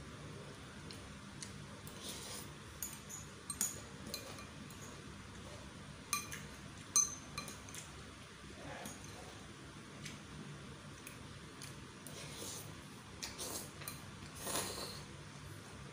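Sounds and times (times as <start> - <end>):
fork and spoon clinking on bowl: 2.8 - 5.0, 6.1 - 7.9
slurp of noodles: 14.4 - 15.0.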